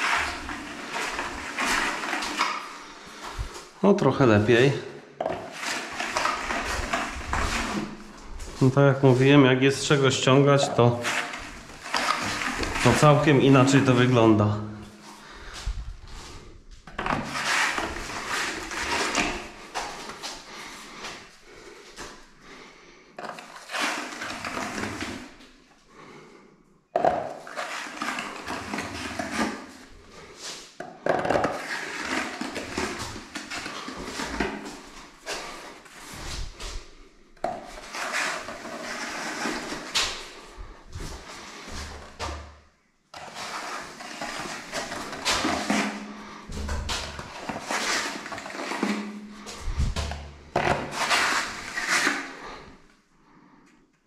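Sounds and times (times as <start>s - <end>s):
blade scraping wet plaster: 0.0s - 3.2s, 5.5s - 8.1s, 10.8s - 14.0s, 17.1s - 20.2s, 23.2s - 25.4s, 27.4s - 30.3s, 31.5s - 36.4s, 37.6s - 40.4s, 43.2s - 52.8s.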